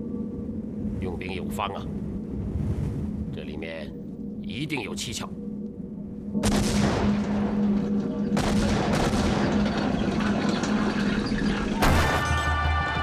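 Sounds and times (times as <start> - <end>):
held low tone: 3.2 - 6.4
clattering battle rumble: 6.4 - 12.4.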